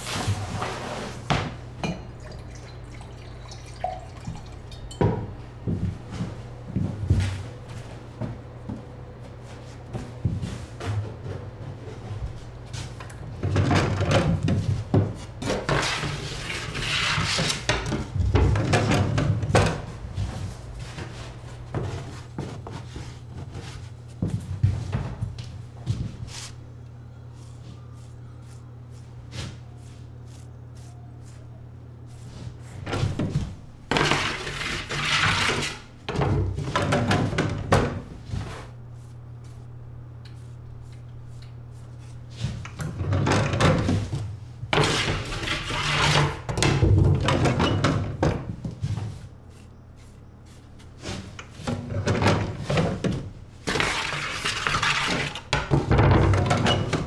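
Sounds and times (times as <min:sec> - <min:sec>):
low steady hum: 0:00.0 - 0:57.0
bread peel scraping and clattering: 0:15.4 - 0:18.0, 0:33.9 - 0:35.9, 0:44.7 - 0:46.9, 0:48.7 - 0:57.0.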